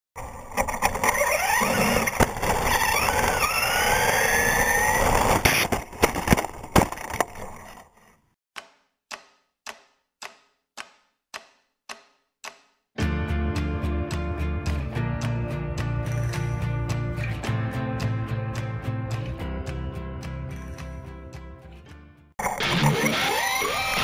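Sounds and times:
evenly spaced ticks: 8.6s - 12.7s
electric motor whine: 22.8s - 24.0s.

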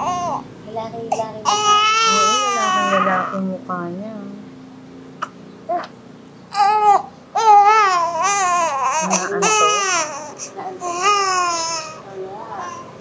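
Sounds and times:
infant crying: 0.0s - 0.4s, 1.1s - 3.5s, 6.5s - 12.0s.

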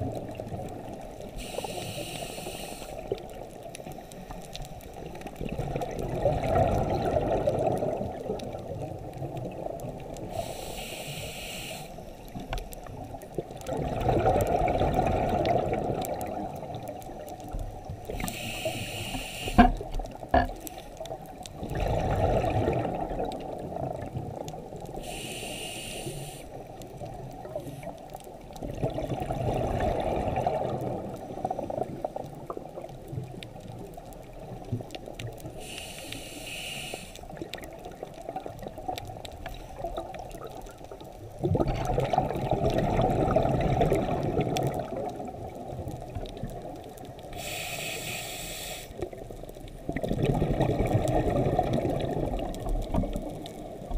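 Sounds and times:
hissing inhalations: 1.4s - 3.1s, 10.3s - 12.2s, 18.2s - 19.8s, 25.0s - 26.6s, 35.5s - 37.3s, 47.3s - 49.0s
underwater bubble exhalations: 5.4s - 8.8s, 13.6s - 17.0s, 19.5s - 20.7s, 21.6s - 24.5s, 28.6s - 32.9s, 41.4s - 46.8s, 49.0s - 53.9s.

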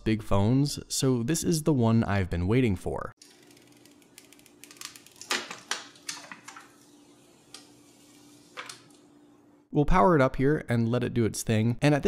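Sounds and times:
plastic film peeling crinkles: 3.2s - 6.9s
faint steady hum: 3.2s - 9.9s.

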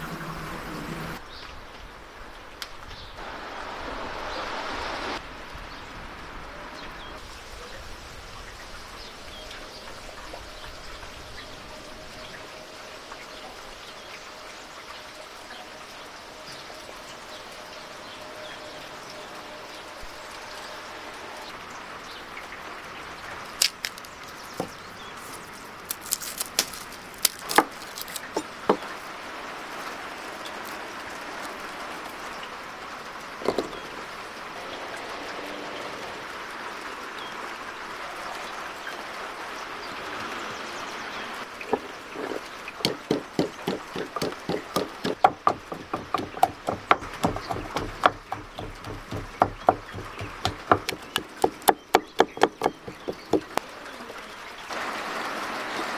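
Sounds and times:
pestle pounding in wooden mortar: 42.8s - 53.6s
scattered knocks: 42.8s - 53.6s.

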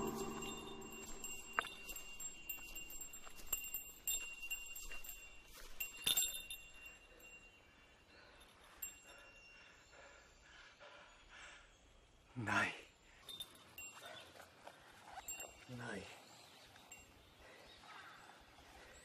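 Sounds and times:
small metal bell ringing: 0.0s - 7.7s, 8.4s - 9.6s, 13.2s - 14.4s.

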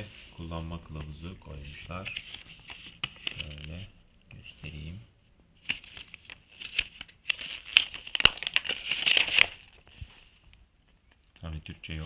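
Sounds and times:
paper crinkling and rustling: 0.0s - 3.9s, 5.6s - 10.4s.

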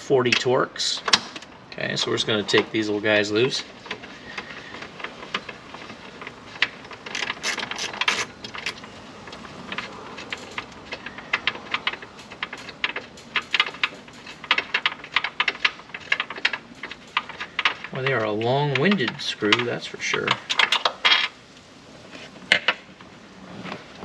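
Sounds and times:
hand ratchet clicking: 3.9s - 21.3s.

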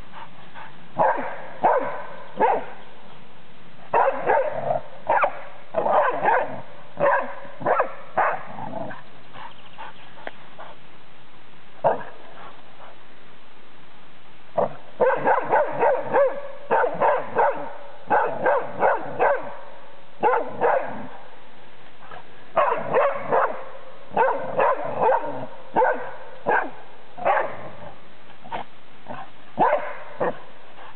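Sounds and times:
dog barking: 1.0s - 2.7s, 3.9s - 8.5s, 11.8s - 12.5s, 15.0s - 19.6s, 20.2s - 21.1s, 22.6s - 27.7s, 29.1s - 30.4s.

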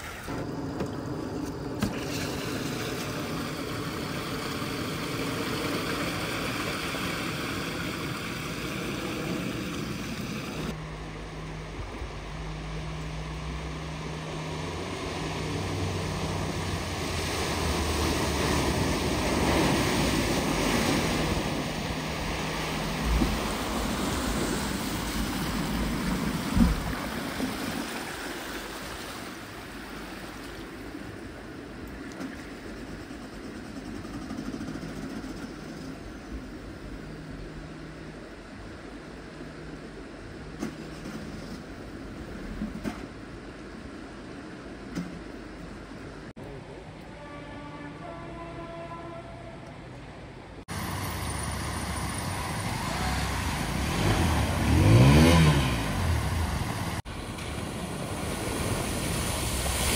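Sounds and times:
vehicle engine: 0.0s - 27.8s, 50.6s - 59.9s
water rushing and splashing: 0.0s - 33.1s, 50.6s - 59.9s.

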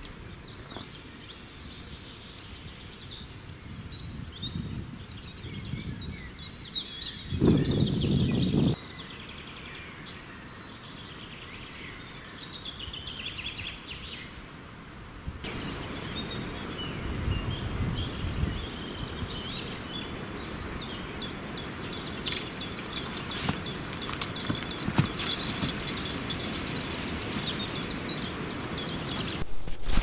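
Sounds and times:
small birds singing and chirping: 0.0s - 14.4s, 15.4s - 29.4s
outdoor background noise: 0.0s - 30.0s.

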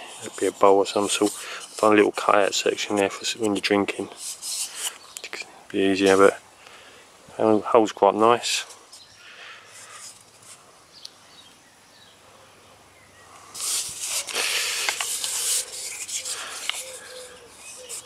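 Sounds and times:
hands rubbing wooden cup: 0.0s - 5.0s, 6.0s - 6.4s, 13.5s - 18.0s.

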